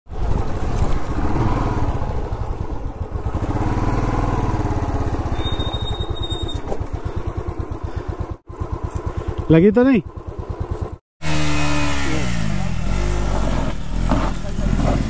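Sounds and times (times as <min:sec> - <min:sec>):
motorcycle engine idling: 0:00.1 - 0:11.0.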